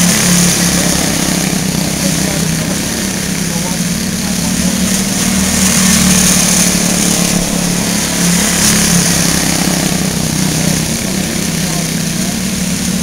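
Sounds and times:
small race car engines droning: 0:00.0 - 0:13.0.

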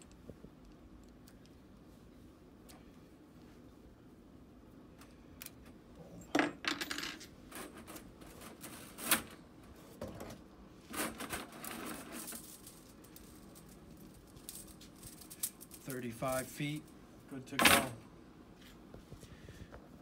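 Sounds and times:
steel cable clinking and rattling: 0:10.9 - 0:16.4.

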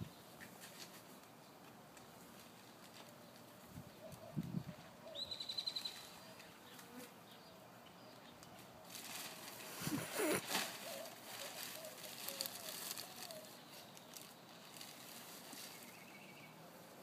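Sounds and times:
rustling and crackling: 0:00.4 - 0:05.0, 0:08.4 - 0:16.0
outdoor hiss: 0:09.0 - 0:17.0
faint voice babbling: 0:09.8 - 0:10.5.

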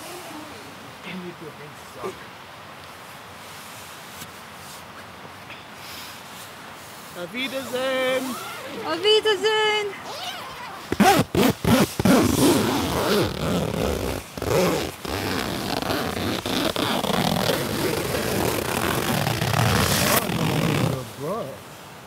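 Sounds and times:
tent fabric rustling: 0:00.0 - 0:02.2, 0:03.0 - 0:05.0, 0:05.8 - 0:21.6
zipper rasping: 0:10.1 - 0:21.0.

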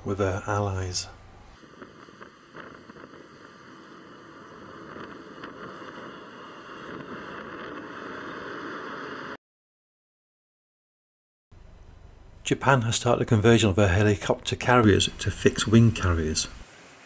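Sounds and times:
jet engines roaring: 0:01.6 - 0:09.4.

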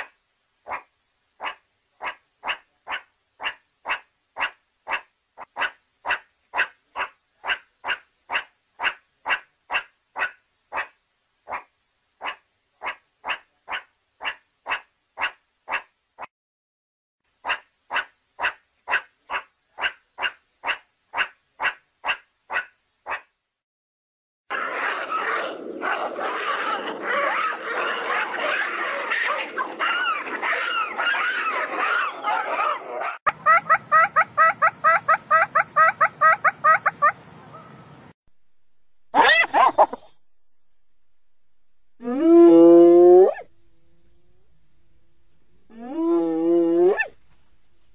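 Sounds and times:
meerkat calling: 0:00.7 - 0:15.9, 0:17.4 - 0:23.2, 0:39.2 - 0:40.1
monkey harsh calls: 0:24.5 - 0:37.9, 0:39.2 - 0:40.0
monkey squeaky cries: 0:28.4 - 0:32.1.

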